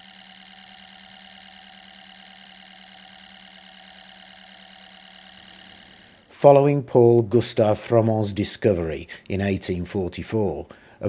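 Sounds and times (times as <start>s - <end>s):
model electric engine humming: 0.0s - 6.3s.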